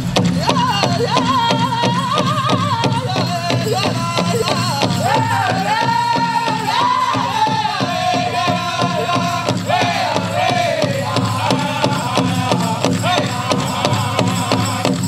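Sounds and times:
steady big drum beat: 0.0s - 15.0s
group singing in high voices: 0.4s - 15.0s.

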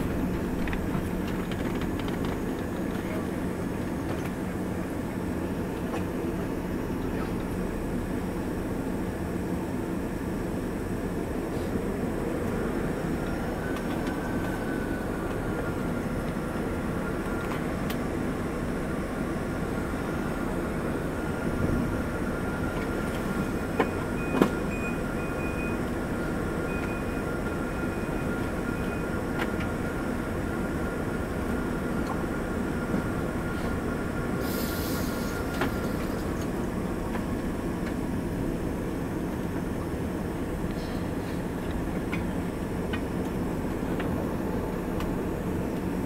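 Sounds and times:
jet engines rumbling: 0.0s - 46.0s
thin steady whine: 4.6s - 41.6s
short hiss: 34.4s - 36.0s.

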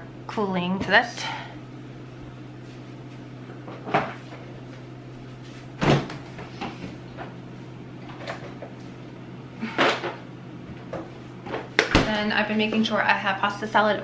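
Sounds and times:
steady low hum: 0.0s - 14.0s
refrigerator door opening thump: 5.8s - 6.2s.

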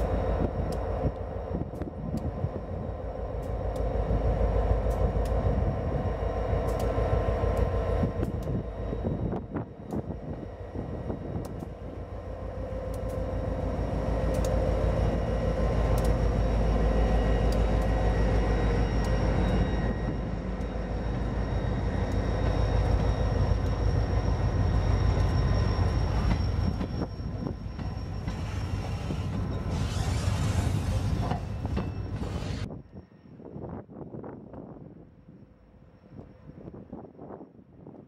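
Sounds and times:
diesel locomotive passing: 0.0s - 37.9s
boxcars rumbling by: 11.1s - 32.7s.

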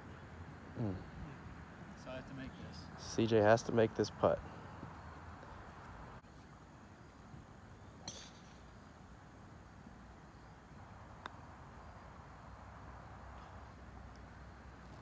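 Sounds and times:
faint outdoor background: 0.0s - 15.0s
putter striking golf ball: 8.0s - 8.6s.

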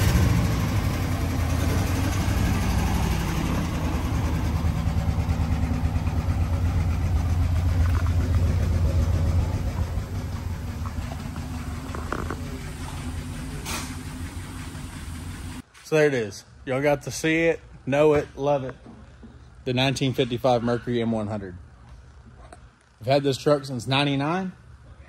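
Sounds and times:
truck engine running low: 0.0s - 15.6s.

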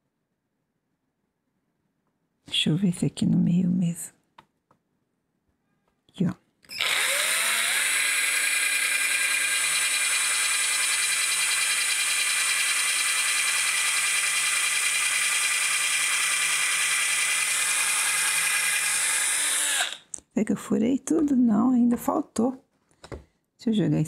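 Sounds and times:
cordless drill boring into wood: 6.7s - 20.1s.

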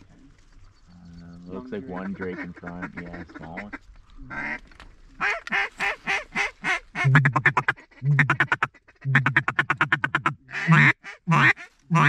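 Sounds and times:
rapid duck chatter: 0.9s - 4.6s, 5.2s - 12.0s
duck quacking: 1.9s - 4.6s, 5.2s - 12.0s.

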